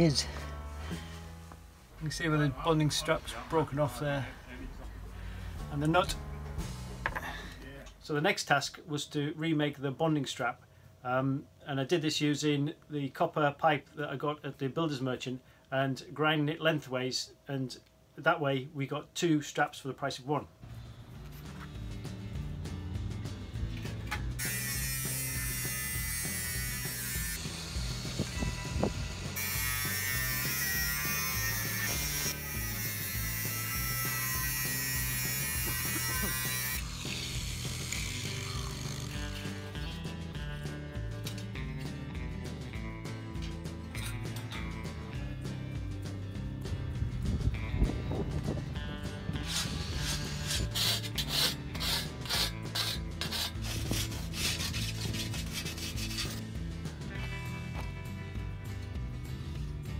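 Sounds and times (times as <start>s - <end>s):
background music with bass line: 0.0s - 7.5s, 20.6s - 59.9s
angle grinder cutting copper pipe: 24.4s - 40.0s, 49.4s - 56.4s.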